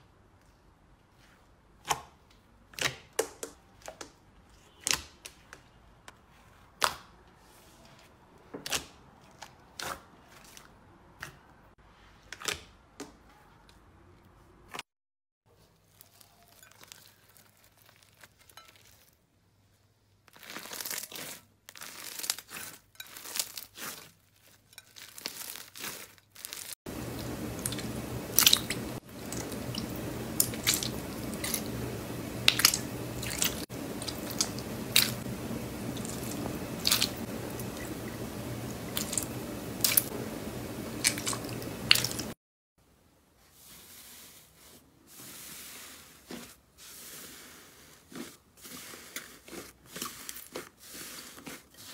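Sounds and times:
hands squishing slime: 25.0s - 42.3s
steady hiss: 26.9s - 42.4s.

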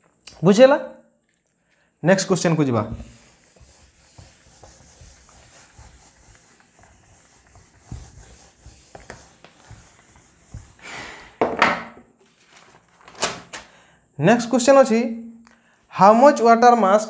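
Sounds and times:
duster rubbing whiteboard: 2.7s - 11.4s.

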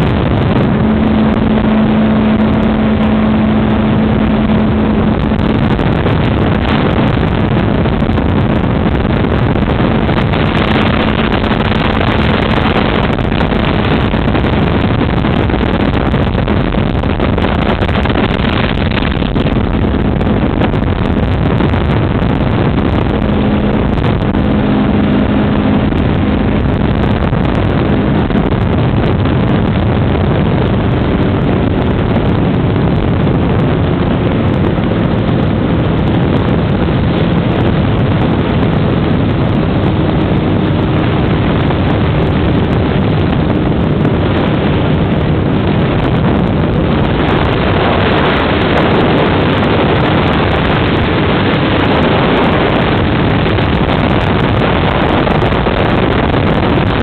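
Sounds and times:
wind rushing across microphone: 0.0s - 57.0s.

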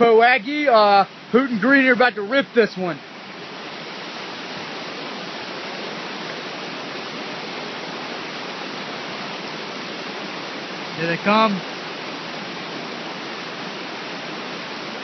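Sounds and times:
river rapids rushing over rocks: 0.0s - 15.0s.

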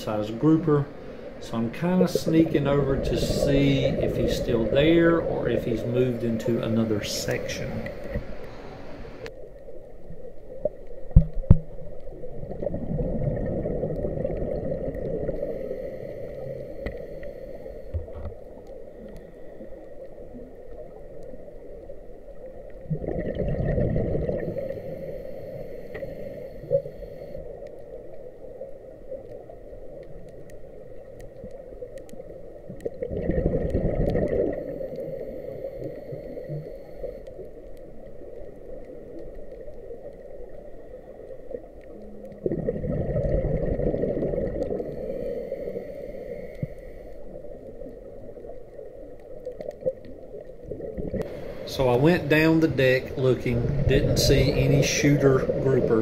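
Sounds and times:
exhaled bubbles rushing: 1.5s - 9.2s, 11.4s - 15.6s, 22.7s - 24.9s, 32.7s - 35.2s, 42.3s - 44.9s, 49.8s - 56.0s
diver breathing through regulator: 15.3s - 18.1s, 24.3s - 27.5s, 34.3s - 37.4s, 44.7s - 47.4s, 51.2s - 51.9s.

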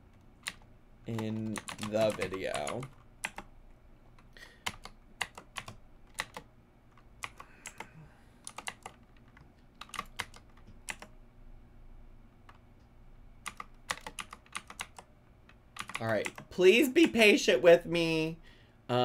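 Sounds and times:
typing on computer keyboard: 0.1s - 3.5s, 4.2s - 11.1s, 13.4s - 16.5s.

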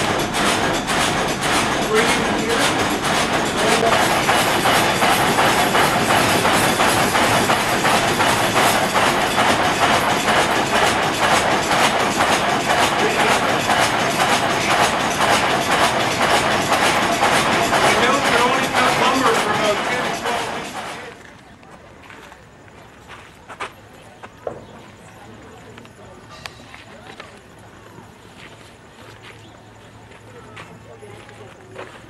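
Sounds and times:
sawmill machinery clatter: 0.0s - 21.4s.

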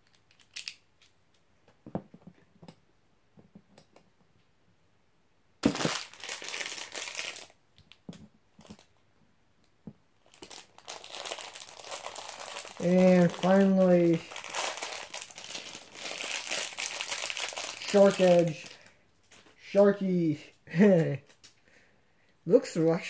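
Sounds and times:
small plastic clicks: 0.0s - 1.4s
plastic packaging crinkling: 5.6s - 8.0s, 8.6s - 8.9s, 10.2s - 18.9s.

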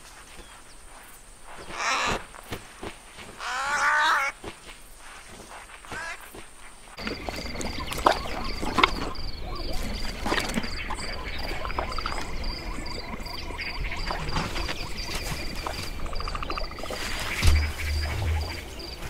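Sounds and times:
insect buzz: 0.0s - 19.0s
rapid high chirping: 11.8s - 19.0s
low wind rumble: 12.2s - 19.0s.

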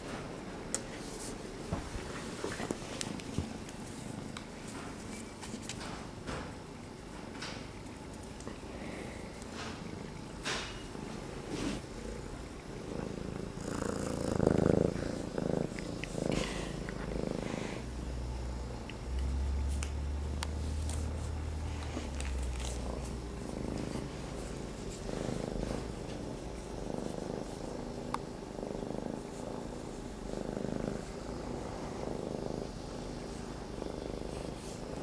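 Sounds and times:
kitten purring: 8.3s - 35.0s.

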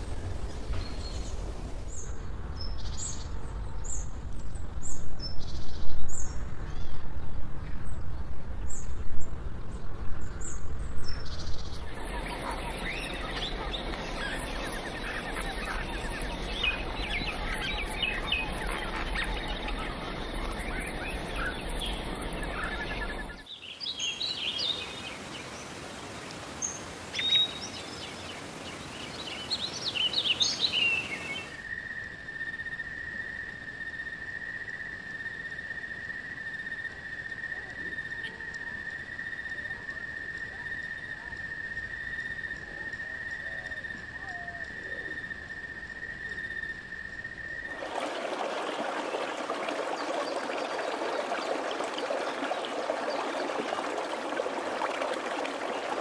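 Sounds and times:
birds chirping: 11.6s - 23.6s, 47.7s - 56.0s
sharp bird calls: 11.8s - 23.5s.

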